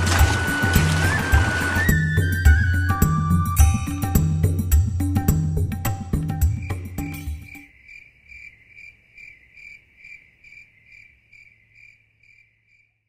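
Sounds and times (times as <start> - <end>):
music: 0.0 - 7.6
cricket chirping: 5.7 - 13.0.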